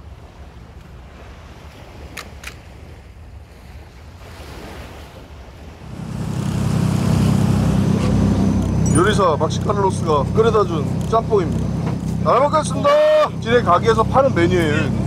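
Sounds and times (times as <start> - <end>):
waves washing in: 0.0 - 15.0
boat engine rumbling: 5.6 - 15.0.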